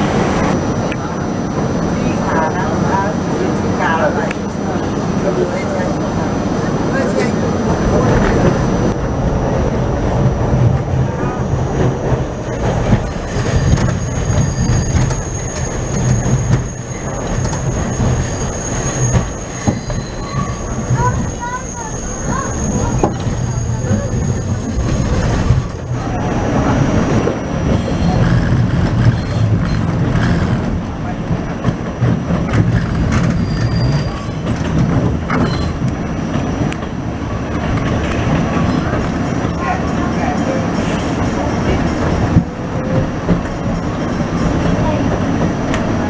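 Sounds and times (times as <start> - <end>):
subway train rumble: 0.0 - 46.0
wheels clacking over rail joints: 10.2 - 46.0
high-pitched wheel squeal: 13.1 - 25.8, 27.8 - 30.4, 32.8 - 34.5, 35.3 - 35.9.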